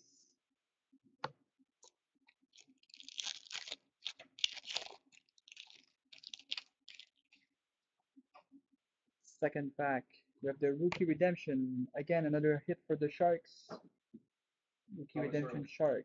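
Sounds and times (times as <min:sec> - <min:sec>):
foil wrapper tearing and crinkling: 0:02.5 - 0:07.4.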